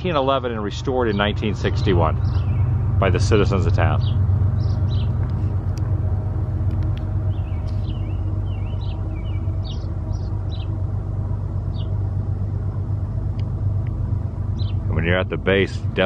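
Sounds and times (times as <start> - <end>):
low engine rumble: 0.0 - 16.0
high bird chirps: 2.1 - 3.0, 7.2 - 10.8.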